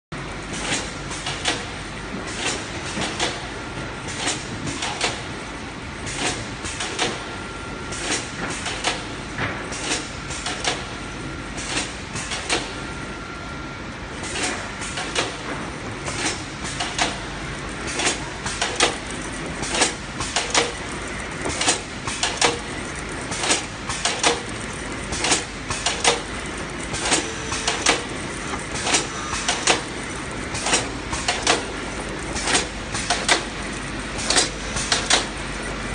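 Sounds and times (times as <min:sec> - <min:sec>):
machinery running: 0:00.1 - 0:35.9
sharp machine clacks: 0:16.1 - 0:17.3, 0:17.9 - 0:35.4.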